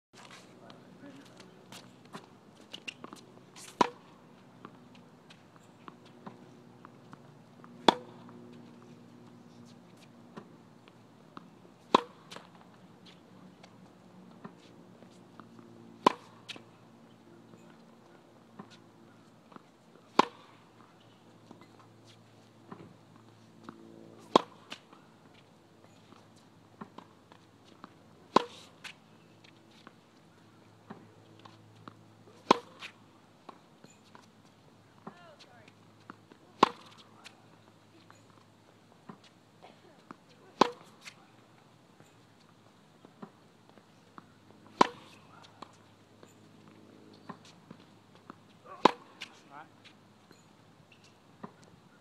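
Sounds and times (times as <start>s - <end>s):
tennis racket hitting ball: 7.1s - 8.4s, 11.9s - 13.2s, 16.0s - 16.6s, 19.5s - 20.9s, 23.7s - 25.0s, 27.7s - 29.0s, 30.9s - 34.2s, 36.4s - 37.4s, 40.1s - 41.2s, 44.6s - 45.8s, 47.3s - 49.5s.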